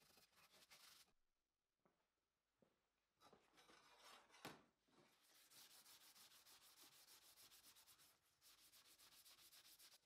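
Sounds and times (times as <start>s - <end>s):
sanding metal plate by hand: 5.4s - 10.0s.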